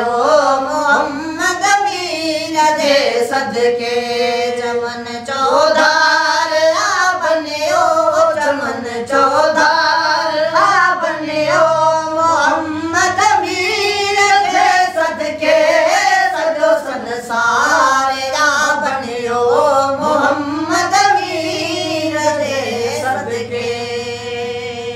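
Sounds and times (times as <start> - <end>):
boy singing devotional song: 0.0 - 24.9
men singing along: 0.0 - 24.9.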